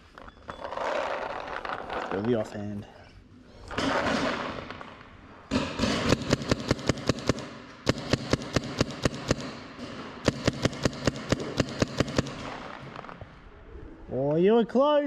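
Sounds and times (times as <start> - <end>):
paintball markers firing: 3.8 - 13.2.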